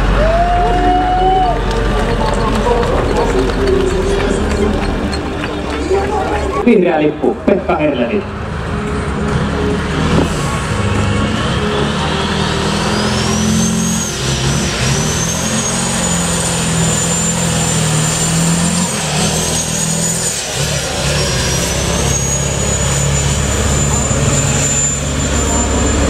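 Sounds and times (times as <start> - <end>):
diesel truck engine pulling hard: 0.0 - 26.0
high whistle: 12.5 - 20.4.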